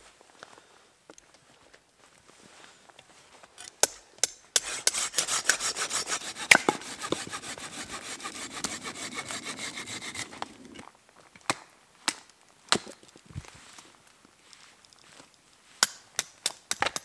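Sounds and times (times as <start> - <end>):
hand saw cutting branch: 4.2 - 10.8.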